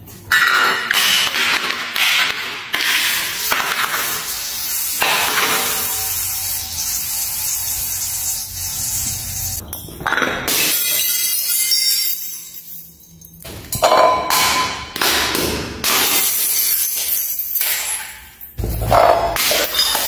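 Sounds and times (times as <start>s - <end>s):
glass bottle rolling down stairs: 15.9s - 20.0s.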